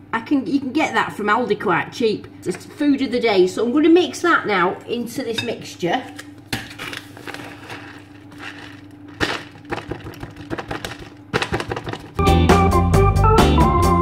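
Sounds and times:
knocks and crackles: 6.6 - 12.2
plastic packet crinkling: 6.8 - 12.2.

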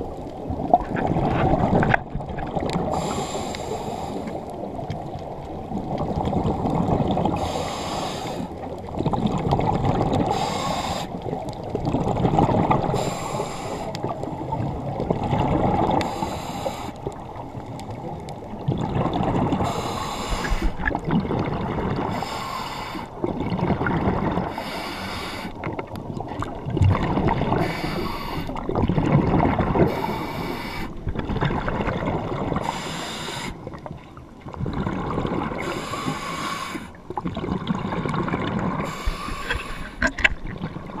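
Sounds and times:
regulator inhalation hiss: 2.9 - 4.4, 7.4 - 8.5, 10.3 - 11.2, 13.0 - 13.9, 16.0 - 17.0, 19.6 - 20.8, 22.1 - 23.1, 24.5 - 25.5, 27.6 - 28.6, 29.9 - 30.9, 32.6 - 33.6, 35.6 - 37.0, 38.8 - 40.0
bubbling exhaled air: 18.6 - 33.9, 34.5 - 41.0.

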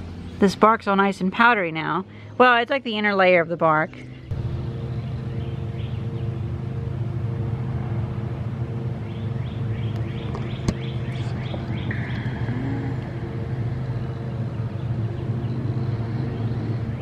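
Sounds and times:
low machine hum: 0.0 - 17.0
bird chirping: 3.8 - 6.5, 9.0 - 17.0.

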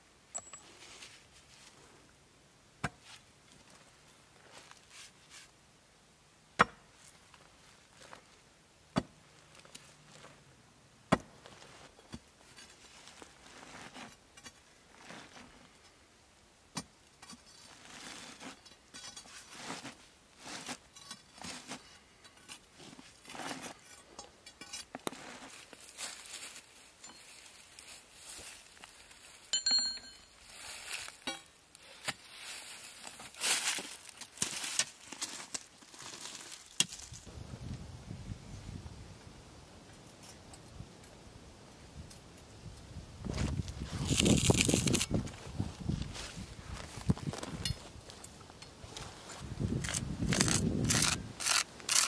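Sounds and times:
sharp metal clink: 29.6 - 30.4.

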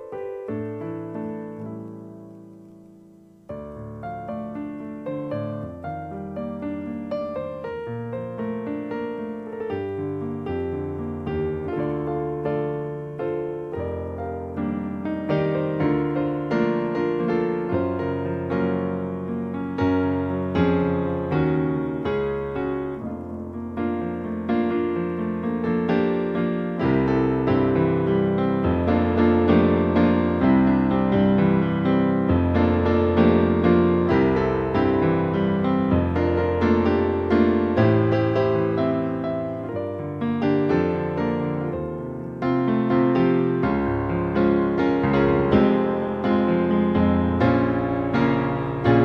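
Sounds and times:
piano and keyboard music: 0.0 - 49.0.

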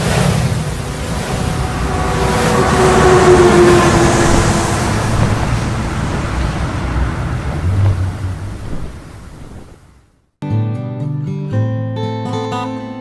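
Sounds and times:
heavy vehicle passing: 0.0 - 10.1.

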